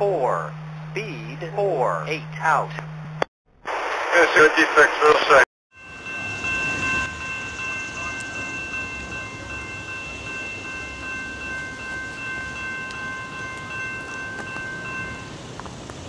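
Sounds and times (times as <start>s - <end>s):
crossing warning bell ringing: 5.7s - 15.7s
train rumble: 5.8s - 16.0s.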